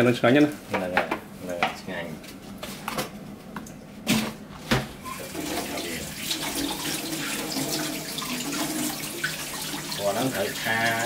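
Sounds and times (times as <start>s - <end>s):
tap water running into sink: 5.0s - 11.0s.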